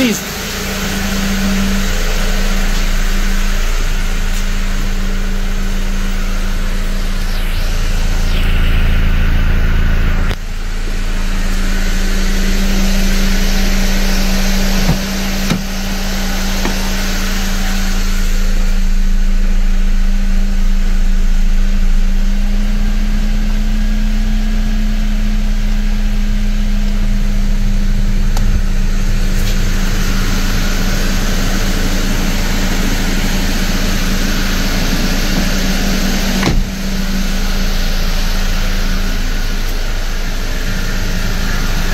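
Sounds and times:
car engine idling: 0.0 - 41.9.

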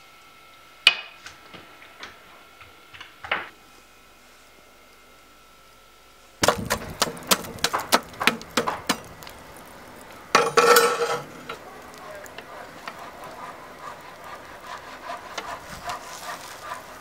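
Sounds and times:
metal rod raking charcoal: 6.4 - 17.0.

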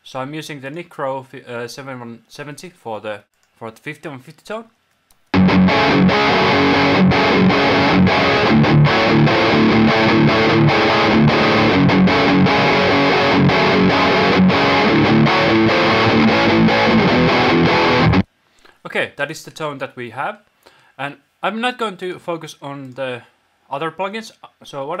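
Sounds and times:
distorted electric guitar riff: 5.3 - 18.3.

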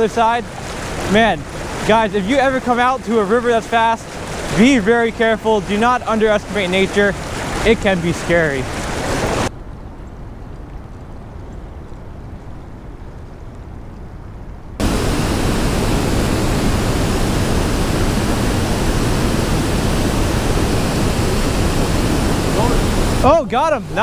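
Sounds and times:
water pouring over dam: 0.0 - 9.5
low muffled rumble: 14.8 - 23.2.

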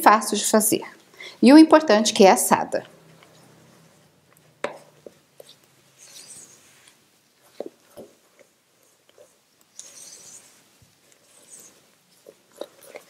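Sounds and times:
spatula scraping and swishing batter: 2.8 - 13.0.

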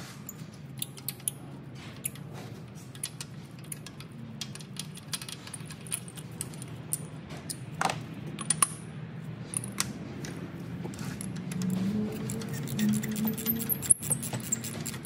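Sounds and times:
metal socket clicks and clinks: 0.3 - 1.4, 8.4 - 8.9, 11.2 - 15.0.

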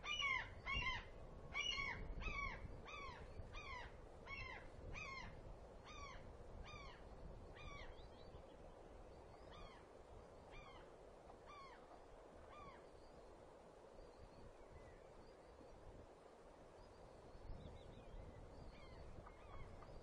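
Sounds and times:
eagle calling: 0.0 - 5.3.

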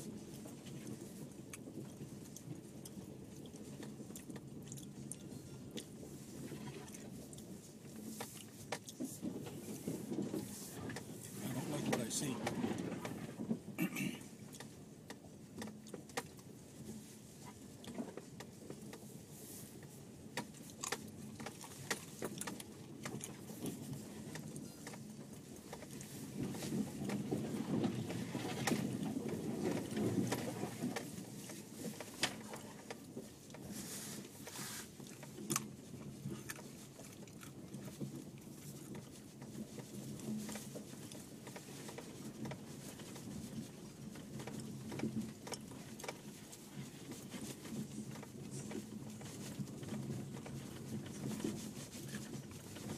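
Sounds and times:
car engine and tyre rumble: 0.0 - 52.9.

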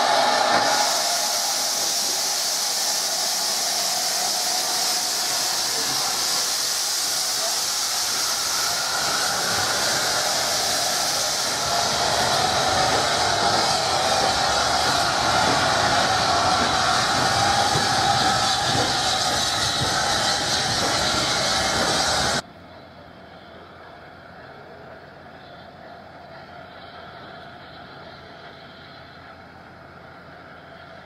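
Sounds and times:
steam locomotive hissing steam: 0.0 - 22.4.

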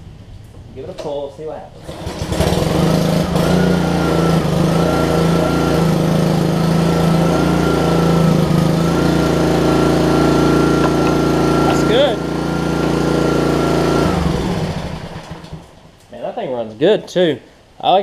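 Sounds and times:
small engine running: 1.8 - 15.8
pull starter recoil: 7.9 - 15.8.

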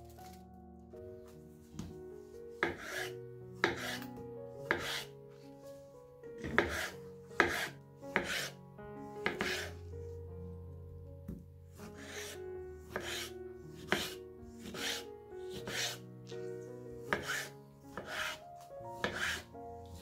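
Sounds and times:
soft background music: 0.0 - 20.0
food preparation strokes: 11.8 - 16.0.

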